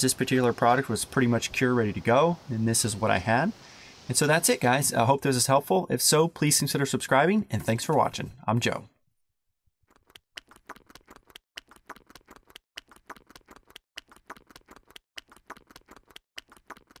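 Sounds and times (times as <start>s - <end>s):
fast clicks in groups: 9.9s - 17.0s.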